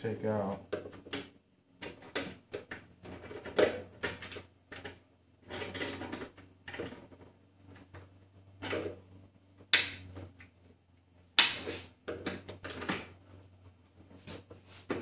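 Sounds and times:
clicks and scrapes: 0.7s - 9.0s.

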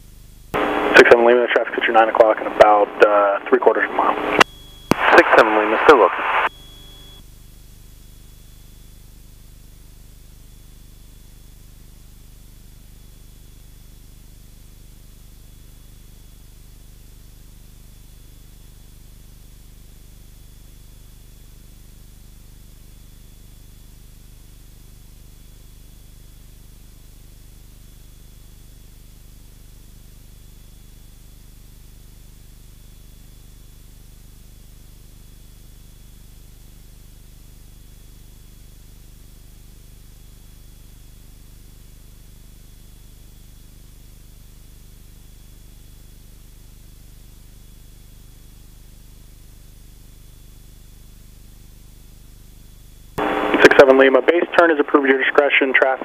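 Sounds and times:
low steady hum: 0.2s - 13.6s, 52.8s - 56.0s
aircraft intercom hiss: 0.6s - 6.5s, 53.2s - 56.0s
faint high whine: 0.6s - 56.0s.

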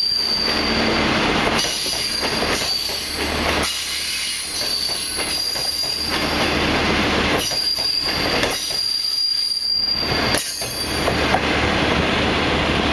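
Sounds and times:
high wheel squeal: 0.0s - 6.7s, 7.4s - 11.3s
train wheels on rails: 0.0s - 12.9s.

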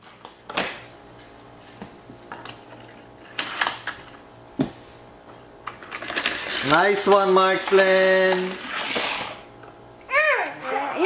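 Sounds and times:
plastic toy pieces clattering: 5.8s - 9.0s.

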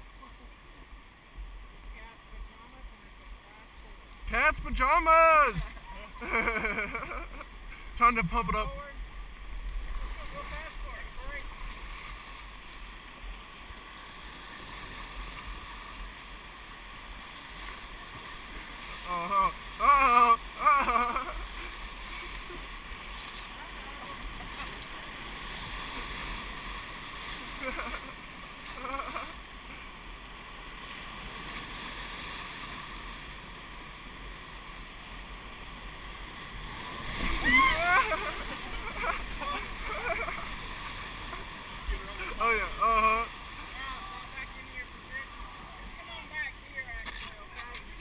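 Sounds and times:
whitewater rushing: 0.0s - 48.0s.

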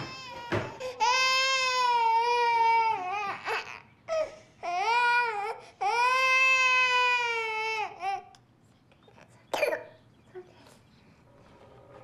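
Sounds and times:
baby crying: 0.0s - 8.3s.

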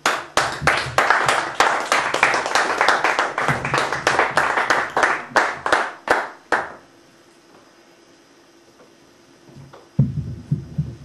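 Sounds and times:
audience applause: 0.0s - 6.8s
faint room hum: 0.0s - 11.0s.

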